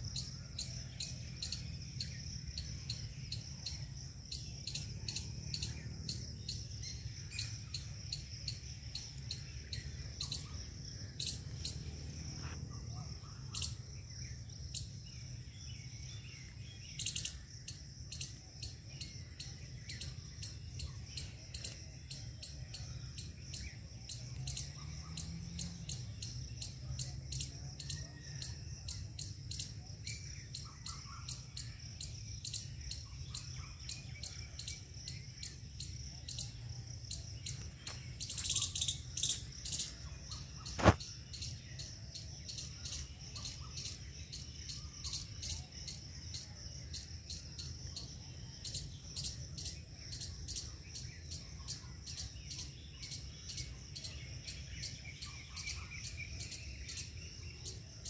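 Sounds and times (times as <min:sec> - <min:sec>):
rapid high-pitched chirping: 0:30.5 - 0:57.2.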